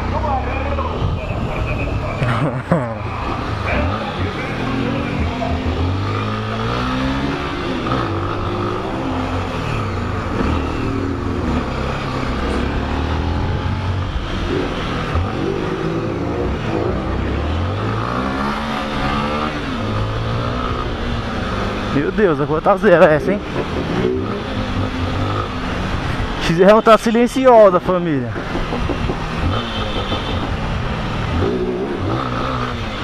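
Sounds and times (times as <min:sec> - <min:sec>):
motorcycle engine accelerating: 0:01.3 - 0:22.2.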